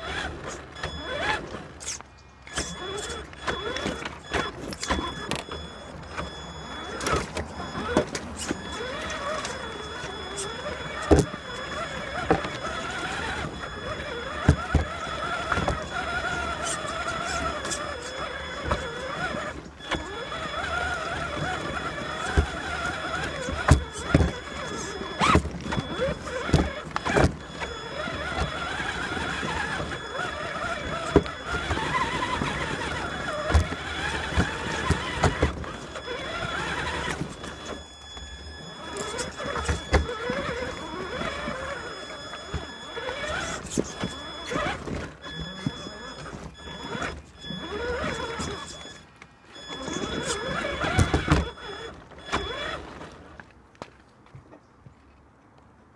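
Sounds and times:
electric motor and gearbox whining: 0.0 - 53.8.

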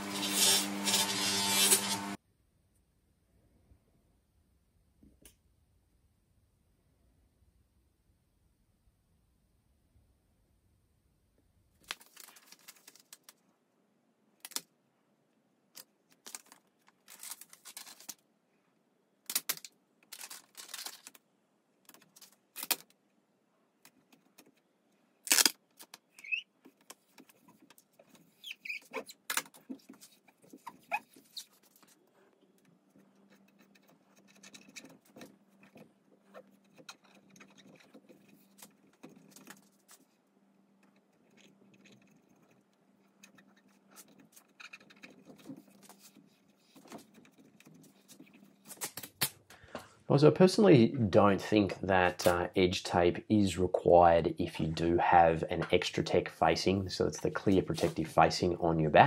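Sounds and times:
plastic sheet crinkling: 11.8 - 13.4, 16.1 - 18.2, 19.3 - 21.2
hands rubbing plastic film: 15.8 - 18.3, 19.3 - 21.2, 25.2 - 49.4
short squeaks: 26.1 - 26.6, 28.2 - 29.3, 30.0 - 31.9.

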